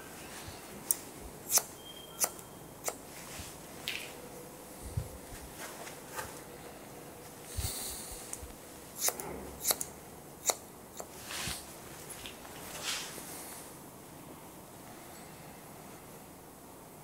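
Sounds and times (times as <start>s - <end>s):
scissors snipping hair: 0.9s - 3.0s, 8.3s - 11.1s.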